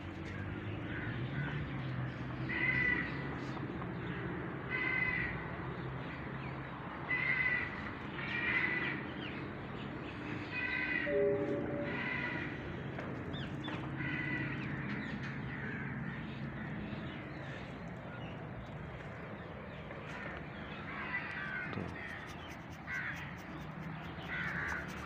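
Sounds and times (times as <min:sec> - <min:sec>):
crows cawing: 0:02.5 - 0:03.2, 0:04.7 - 0:05.4, 0:07.1 - 0:09.0, 0:10.6 - 0:12.9, 0:13.7 - 0:16.8, 0:20.1 - 0:25.0.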